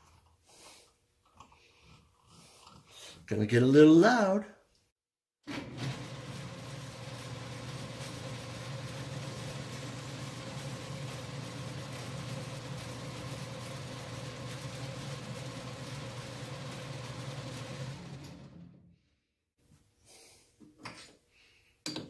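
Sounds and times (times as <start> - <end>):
metal lathe whirring: 5.5 - 18.7.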